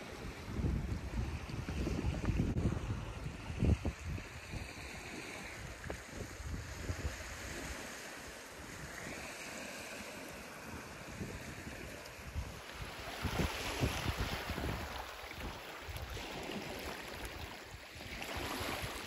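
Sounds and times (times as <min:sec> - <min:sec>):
wind buffeting microphone: 0:00.0 - 0:09.2, 0:10.6 - 0:19.0
waves washing onto pebble shore: 0:04.4 - 0:19.0.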